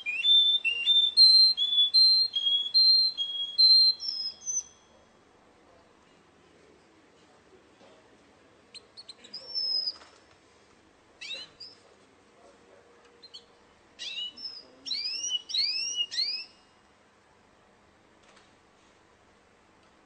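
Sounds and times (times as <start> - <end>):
canary singing: 0.0 - 5.0, 8.7 - 10.0, 11.2 - 11.8, 13.2 - 16.7.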